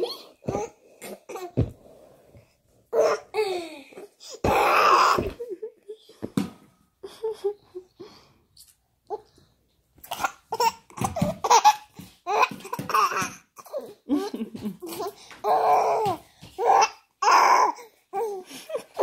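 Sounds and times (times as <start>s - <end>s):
toddler laughing: 10.1s - 17.7s.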